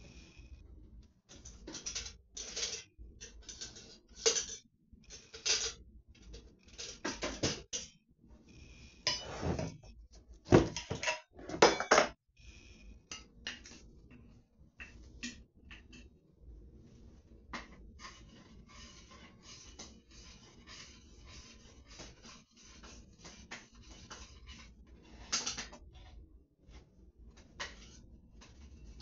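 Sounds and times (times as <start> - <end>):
pots and dishes clattering: 10.5 - 12.2.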